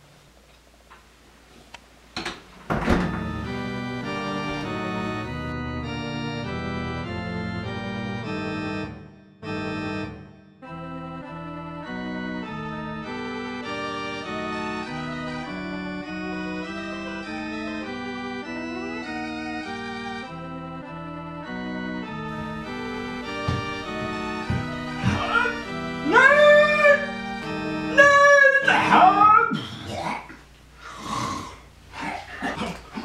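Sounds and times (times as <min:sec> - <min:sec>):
slow organ chords: 0:02.7 - 0:29.9
light knocks: 0:22.6 - 0:25.4.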